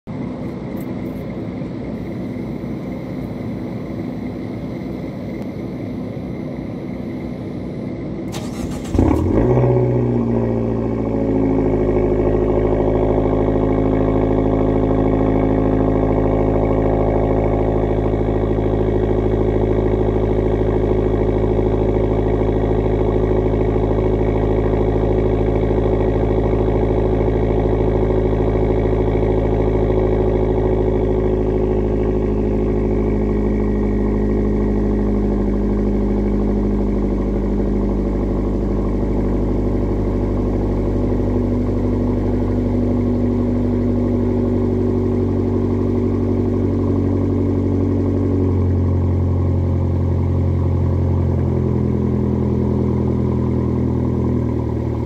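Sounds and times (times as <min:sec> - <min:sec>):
car engine idling: 0:00.1 - 0:55.0
car engine cranking and starting: 0:08.2 - 0:55.0.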